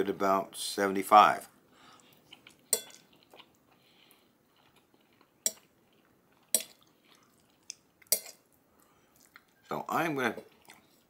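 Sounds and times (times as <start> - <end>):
faint chewing: 1.8 - 9.7, 10.3 - 11.0
metal fork clinking on plate: 2.7 - 3.0.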